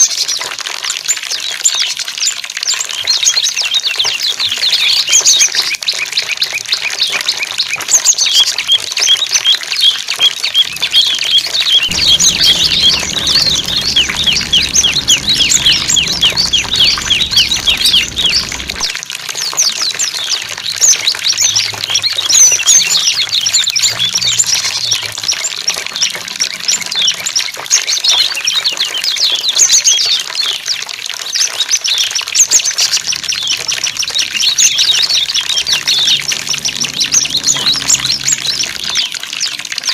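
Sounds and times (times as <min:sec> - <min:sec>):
flowing water rushing: 0:09.1 - 0:27.4, 0:32.4 - 0:39.9
songbirds chirping and trilling: 0:10.2 - 0:18.9, 0:32.8 - 0:39.6
low hum: 0:10.2 - 0:22.3, 0:32.8 - 0:39.6.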